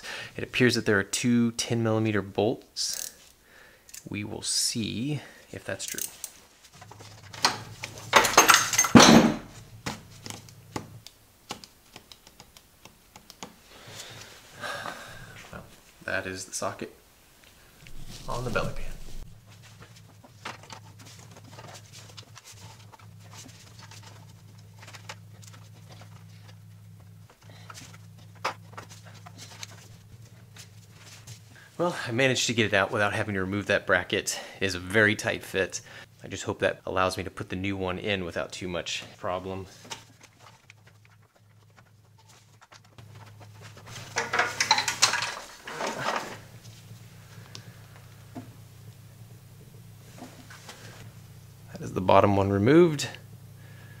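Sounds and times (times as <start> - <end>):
steady low hum: 0.0 - 54.0
metal parts clinking and rattling: 5.8 - 6.4, 7.0 - 9.4, 43.9 - 46.4
small clicks and rustles: 39.7 - 48.5.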